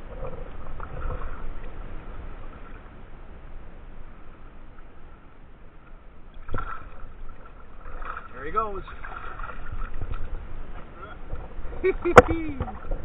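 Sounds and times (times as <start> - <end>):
water lapping against kayak: 0.0 - 13.0
wind rumbling on microphone: 0.0 - 13.0.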